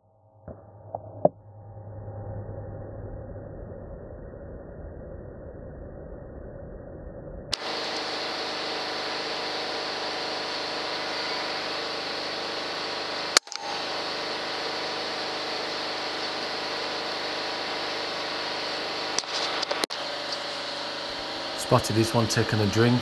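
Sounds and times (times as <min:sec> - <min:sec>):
generator humming: 0:07.5 - 0:23.0.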